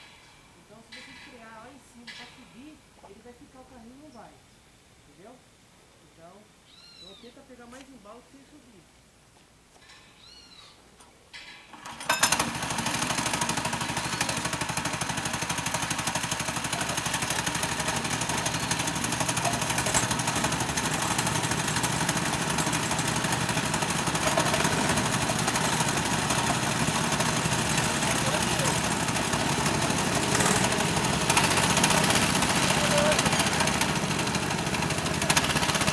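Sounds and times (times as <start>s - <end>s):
go-kart engine running: 11.8s - 35.9s.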